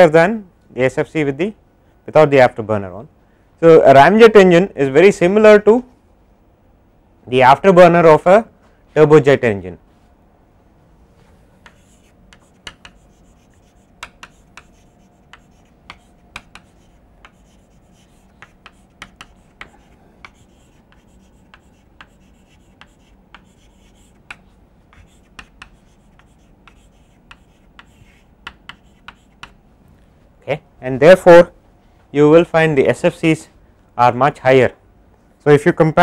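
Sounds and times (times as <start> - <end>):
chalk writing on chalkboard: 11.5 - 29.6.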